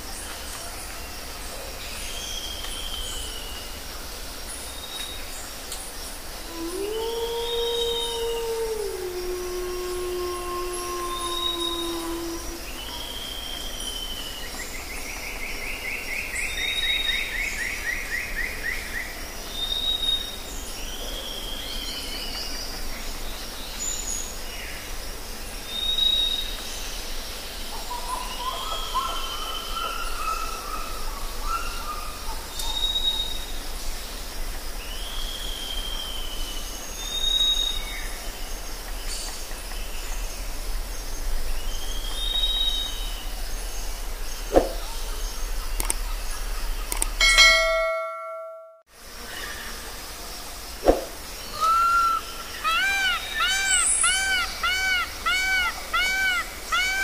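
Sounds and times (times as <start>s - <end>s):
steady background hiss: 0.0s - 48.0s, 48.9s - 57.0s
low warbled bird call: 6.5s - 13.4s, 44.4s - 48.6s, 50.8s - 57.0s
rapid descending bird trill: 47.2s - 48.8s.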